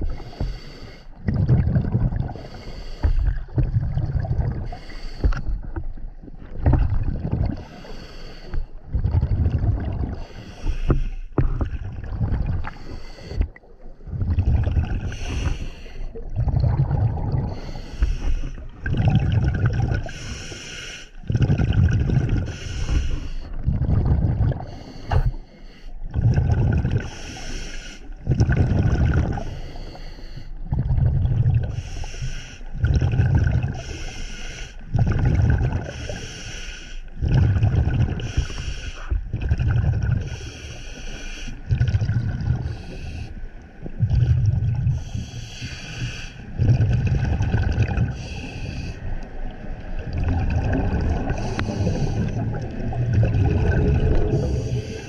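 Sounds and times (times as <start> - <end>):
exhaled air bubbling: 0.0 - 55.0.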